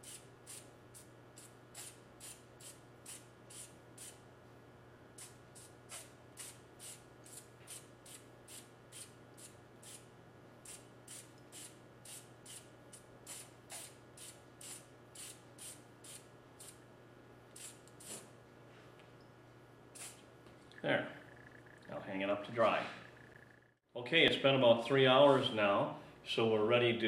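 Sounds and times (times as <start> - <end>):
aerosol sprayer hissing bursts: 0.0 - 4.2, 5.2 - 10.0, 10.7 - 16.8, 20.0 - 20.2.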